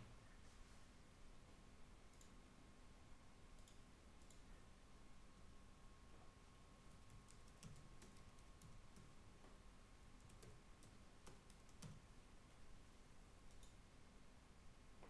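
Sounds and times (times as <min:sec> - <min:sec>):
keyboard typing: 0:06.9 - 0:09.2, 0:10.2 - 0:12.1.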